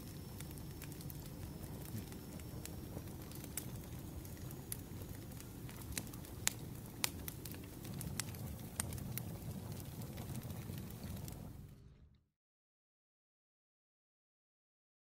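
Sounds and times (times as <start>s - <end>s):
campfire crackling: 0.0s - 12.0s
burning wood rumble: 0.0s - 12.2s.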